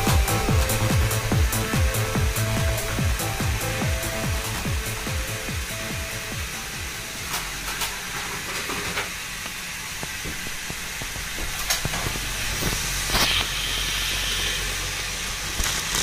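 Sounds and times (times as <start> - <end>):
toy train motor and wheels: 0.0 - 16.0.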